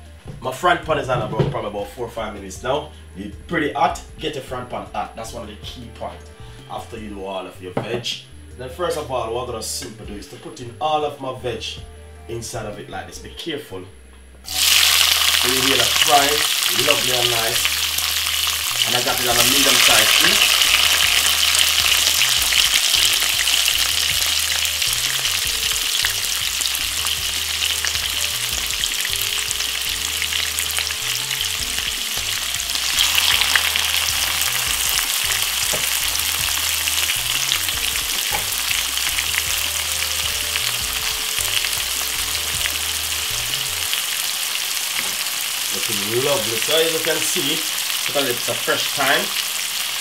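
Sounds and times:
vegetables sizzling in a frying pan: 0:14.5 - 0:50.0.

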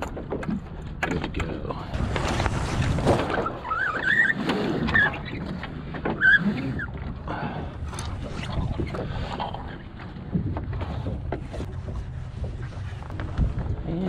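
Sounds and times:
sailcloth rustling and flapping: 0:02.0 - 0:05.8.

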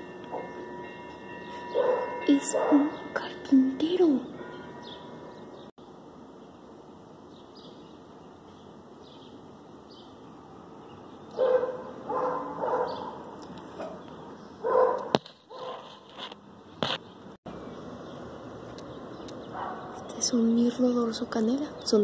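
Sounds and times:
dog barking: 0:01.7 - 0:02.9, 0:11.4 - 0:13.2, 0:14.6 - 0:15.9, 0:19.5 - 0:20.0.

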